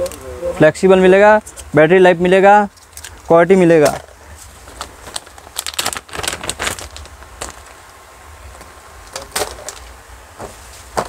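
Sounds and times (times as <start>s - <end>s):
low steady hum: 0.0s - 11.0s
plastic packages clattering: 3.8s - 7.8s.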